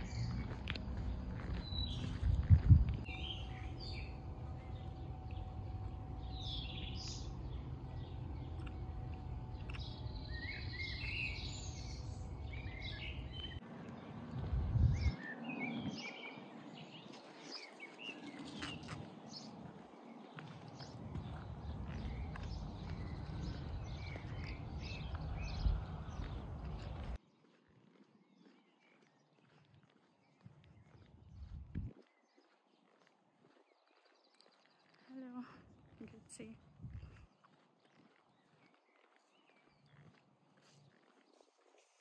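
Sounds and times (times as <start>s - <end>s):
low bumps: 0.0s - 15.2s
low outdoor rumble: 0.0s - 17.0s, 18.3s - 27.2s
small birds chirping: 0.0s - 42.0s.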